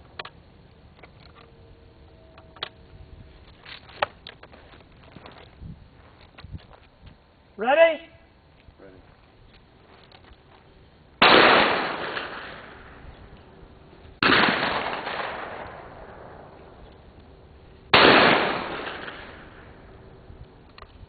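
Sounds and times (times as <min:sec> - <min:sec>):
shotgun shots: 0:11.2 - 0:13.0, 0:14.2 - 0:16.4, 0:17.9 - 0:19.7.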